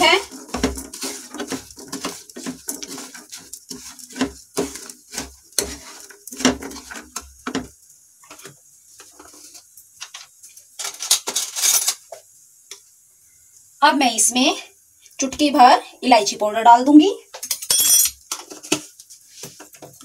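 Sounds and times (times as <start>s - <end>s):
wooden spatula scraping a pan: 0.0s - 12.2s, 18.3s - 20.0s.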